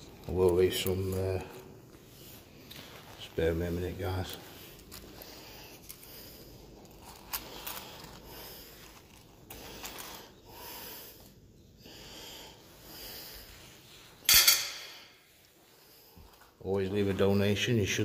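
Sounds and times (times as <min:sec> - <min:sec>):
rustling in a leather wallet: 0:00.0 - 0:10.4.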